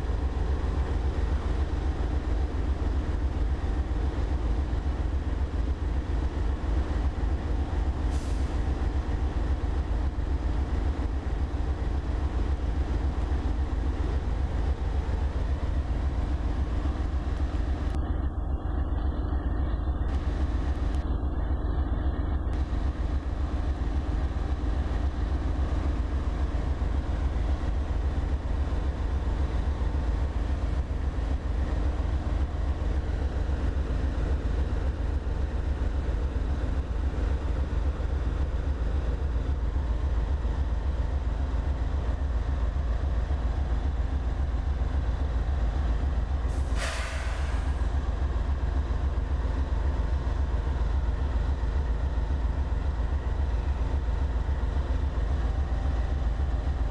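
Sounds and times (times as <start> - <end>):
locomotive engines idling: 0.0 - 56.9
short hiss: 46.6 - 47.8.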